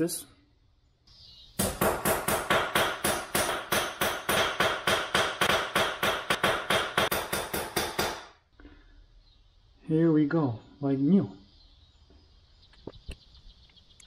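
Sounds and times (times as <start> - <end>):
hammer striking metal: 1.6 - 8.3.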